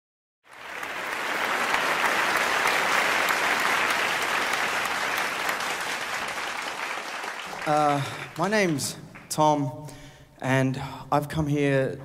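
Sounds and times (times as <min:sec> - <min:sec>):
audience applauding: 0:00.5 - 0:09.4.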